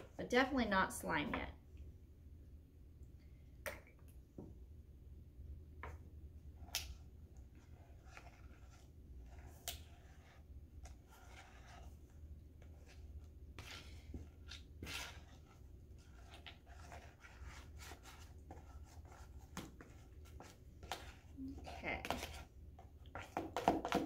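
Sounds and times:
utensil scraping a plastic bowl: 7.4 - 24.0.

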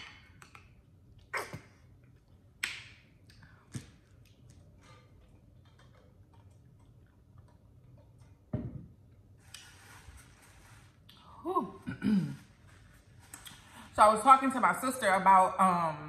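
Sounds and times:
cup thumping on table: 8.5 - 8.9.

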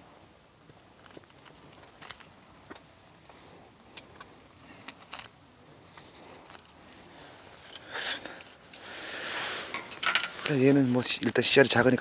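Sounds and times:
hands handling fish and tackle: 3.8 - 11.4.

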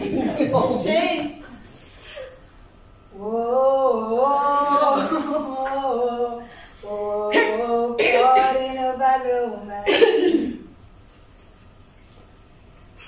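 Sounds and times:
woman singing unaccompanied: 3.1 - 10.2.

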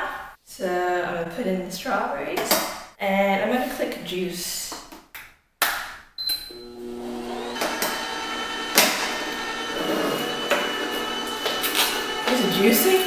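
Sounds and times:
juicer motor whining: 6.5 - 13.0
fruit knocking in juicer chute: 6.6 - 13.0.

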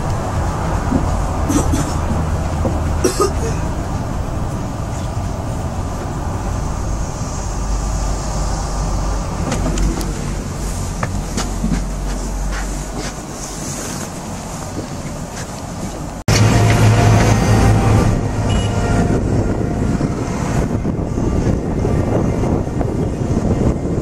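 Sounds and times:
monorail car rumble: 0.0 - 24.0.

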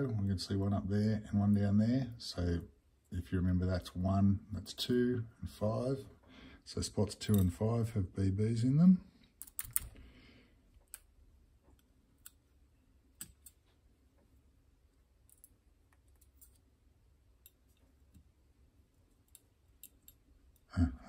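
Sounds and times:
faint metal lock parts clicking: 7.2 - 7.6, 9.4 - 10.0, 13.1 - 13.7, 15.2 - 16.7, 19.0 - 20.7.

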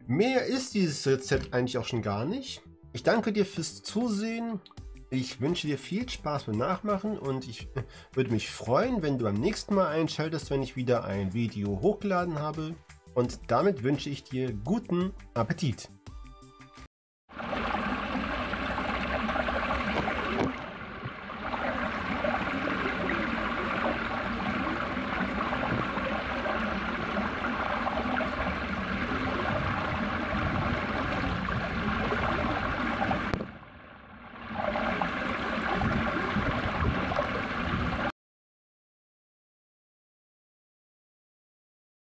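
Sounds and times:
shallow water rushing over stones: 17.3 - 38.1.

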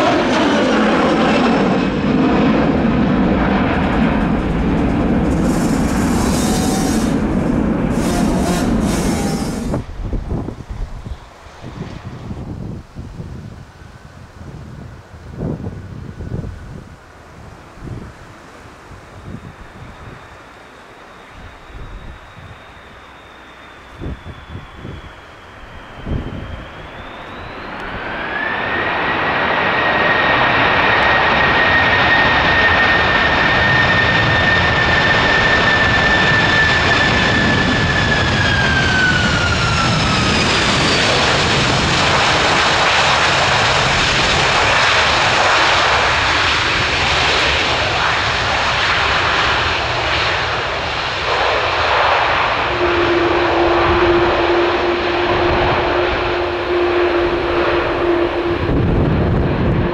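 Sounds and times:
jet engines whine and roar: 0.0 - 59.9
low hum: 2.7 - 12.0.

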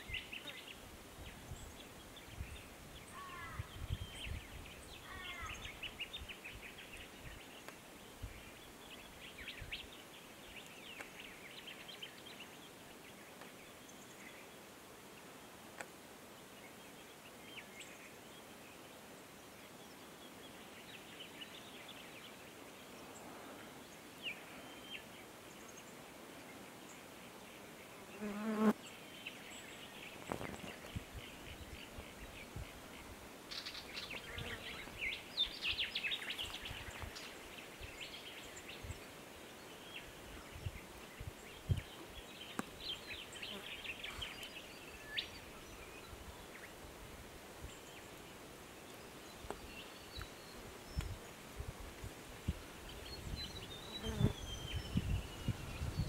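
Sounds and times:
insects buzzing: 28.0 - 28.9, 53.8 - 55.9.

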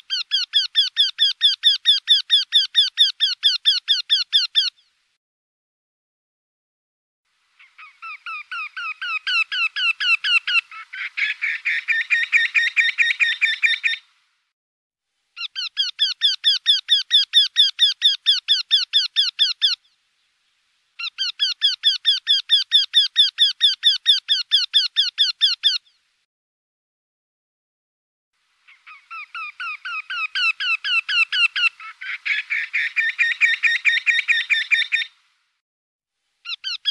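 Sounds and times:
bird singing repeated notes: 15.4 - 19.9, 21.0 - 26.0, 36.4 - 36.9.

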